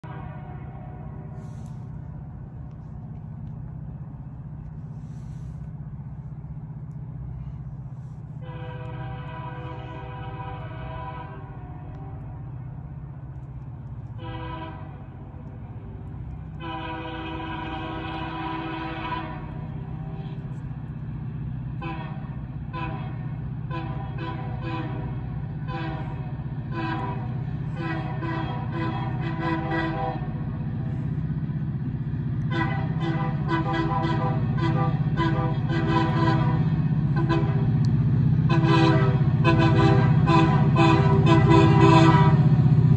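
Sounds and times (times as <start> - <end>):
train air horn: 0.0 - 1.9, 8.4 - 12.4, 14.2 - 15.3, 16.6 - 20.5, 21.8 - 31.0, 32.5 - 37.8, 38.5 - 42.6
train locomotive rumbling: 0.0 - 42.9.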